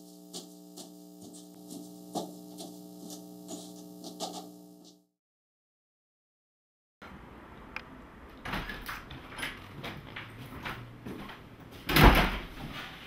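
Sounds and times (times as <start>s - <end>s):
footsteps on hard floor: 0.0s - 5.0s, 9.8s - 11.4s.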